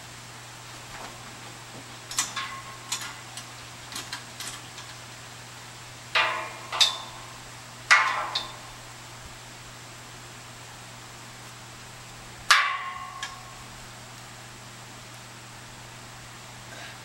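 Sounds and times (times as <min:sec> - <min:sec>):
metallic taps and clanks: 0:01.8 - 0:05.0, 0:06.2 - 0:08.8, 0:12.5 - 0:13.5
ringing metal clangs: 0:02.1 - 0:04.6, 0:06.2 - 0:08.8, 0:12.5 - 0:13.7.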